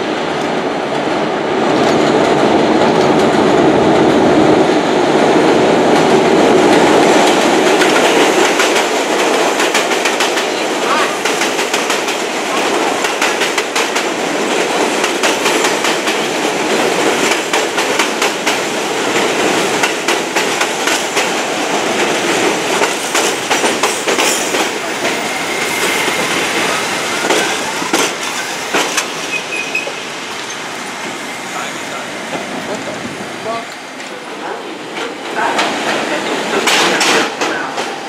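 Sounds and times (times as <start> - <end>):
train rumble: 0.0 - 38.0
high wheel squeal: 25.1 - 28.6, 29.2 - 30.7
wheels clicking over rail joints: 26.3 - 30.8.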